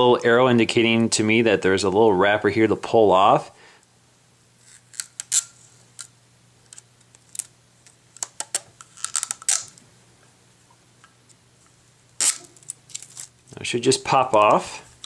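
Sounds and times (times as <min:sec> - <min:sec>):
plastic film crinkling and clicking: 0:06.7 - 0:09.8, 0:12.2 - 0:13.6.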